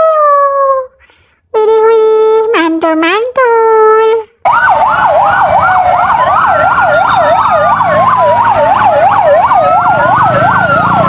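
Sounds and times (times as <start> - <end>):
low rumble of truck engines: 4.4 - 11.0
siren fast yelp: 4.4 - 11.0
siren slow wail: 4.4 - 11.0.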